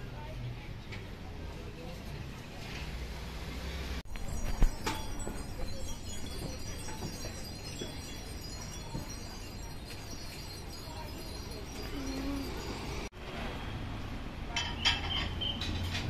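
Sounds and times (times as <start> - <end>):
market noise: 0.0 - 16.0
metallic chiming: 4.1 - 13.1.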